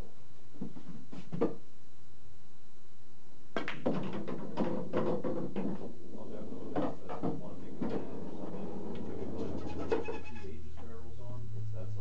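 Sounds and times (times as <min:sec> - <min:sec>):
pool balls clacking: 0:03.6 - 0:10.1.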